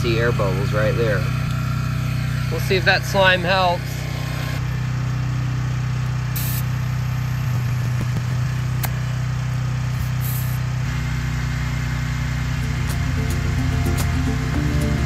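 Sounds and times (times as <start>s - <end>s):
motor humming: 0.0s - 15.0s
air hissing: 6.4s - 6.7s, 10.0s - 10.6s.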